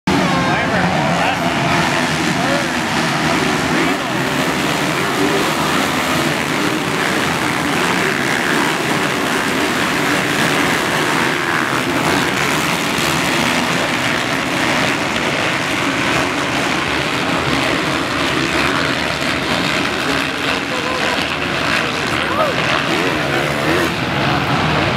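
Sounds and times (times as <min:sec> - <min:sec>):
dirt bike engines revving: 0:00.0 - 0:24.9.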